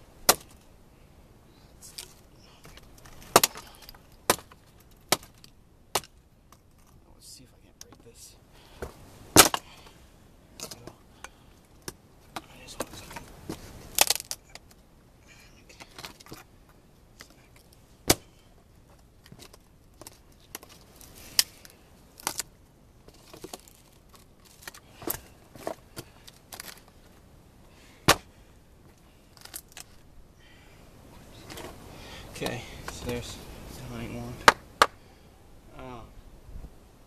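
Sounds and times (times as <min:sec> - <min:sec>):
dry branches knocking and clattering: 0:01.9 - 0:07.0, 0:07.8 - 0:10.0, 0:10.6 - 0:14.8, 0:15.7 - 0:22.5, 0:23.1 - 0:27.2, 0:28.0 - 0:30.0.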